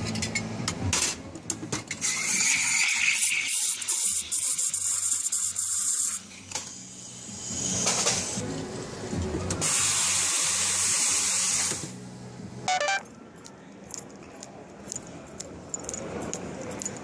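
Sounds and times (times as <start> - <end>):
loud hiss of spray: 9.6 - 11.9.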